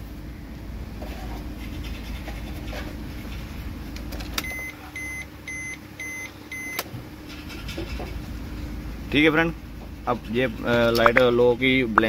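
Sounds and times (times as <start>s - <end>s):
car warning chime beeps: 4.4s - 6.8s.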